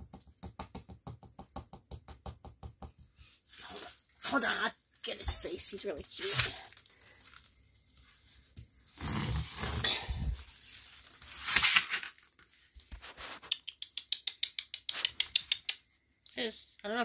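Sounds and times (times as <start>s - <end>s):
sharp clicks: 13.5s - 15.8s.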